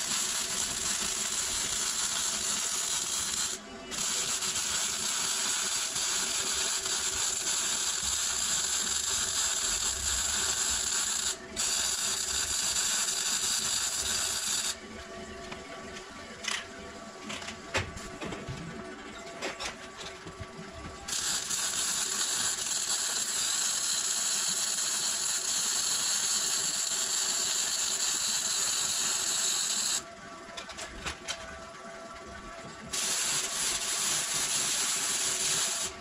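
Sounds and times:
electric arc welding crackling hiss: 0.0 - 14.8, 21.1 - 30.0, 32.9 - 36.0.

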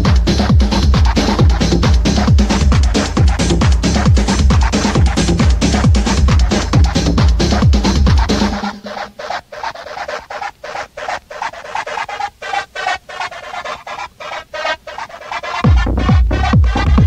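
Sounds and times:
kick drum: 0.0 - 8.6, 15.6 - 17.0
techno music: 0.0 - 9.4, 15.2 - 17.0
fast hi-hat and percussion: 0.0 - 17.0.

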